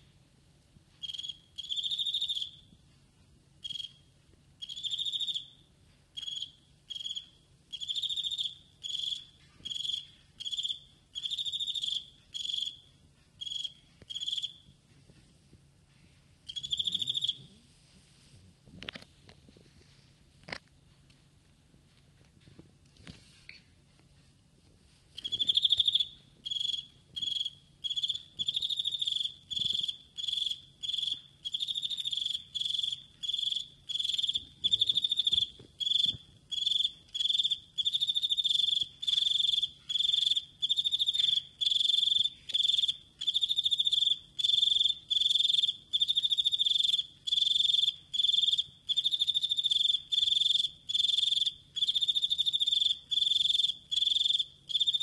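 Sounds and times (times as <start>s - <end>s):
cricket chirping: 1.0s - 2.7s, 3.6s - 14.7s, 16.5s - 17.5s, 25.2s - 55.0s.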